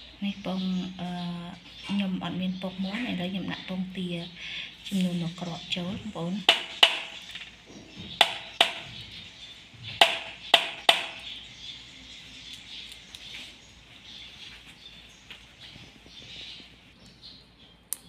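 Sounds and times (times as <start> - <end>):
egg knocking on ceramic bowl: 6.5 - 7.1, 10.0 - 11.2.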